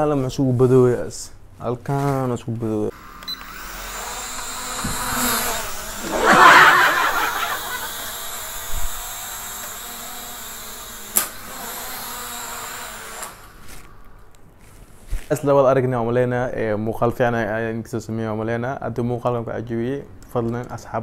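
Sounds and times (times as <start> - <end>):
drone propellers buzzing: 3.0 - 13.8.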